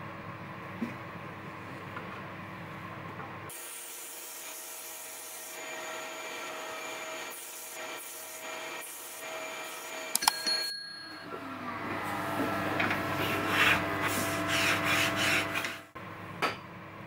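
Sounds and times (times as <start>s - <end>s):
disc sander motor whine: 11.3s - 14.5s
wood sanding against disc: 12.4s - 15.9s.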